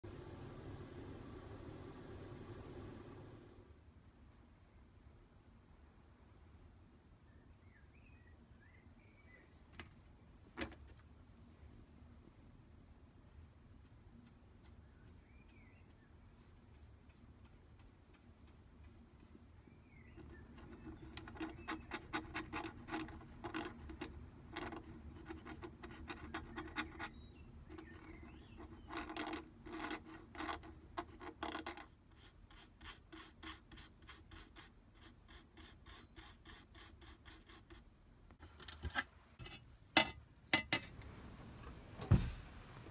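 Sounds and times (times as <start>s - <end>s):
brush strokes on glass: 11.4s - 23.8s.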